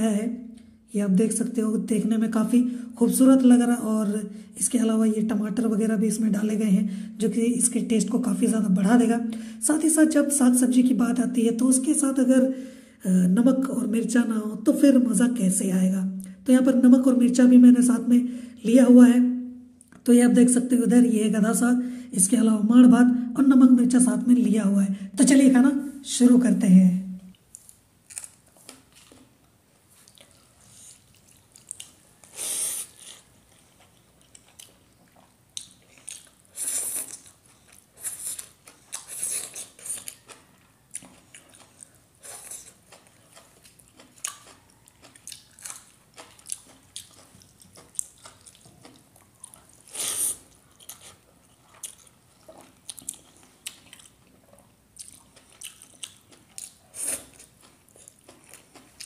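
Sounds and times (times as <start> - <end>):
close chewing and biting: 30.0 - 59.0.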